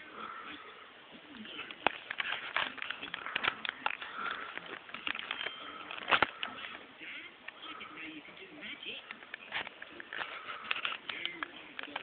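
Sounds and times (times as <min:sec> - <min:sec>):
camera handling clicks and rustles: 0:01.7 - 0:06.8, 0:09.1 - 0:12.0.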